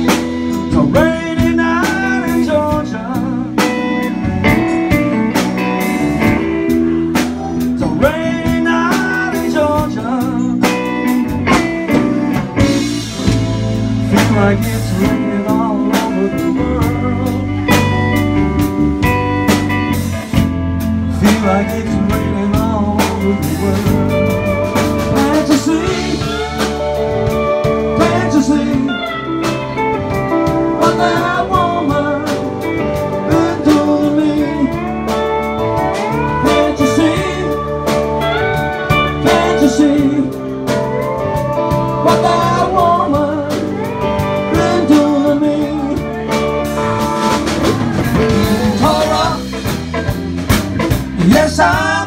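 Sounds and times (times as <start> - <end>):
drum kit: 0.0 - 52.0
electric bass: 0.0 - 52.0
electric guitar: 0.0 - 52.0
lap steel guitar solo: 23.2 - 49.6.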